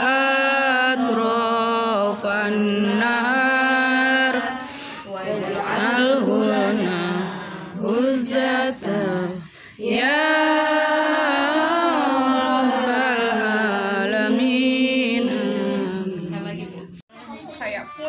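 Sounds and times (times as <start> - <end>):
women chanting together: 0.0 - 17.0.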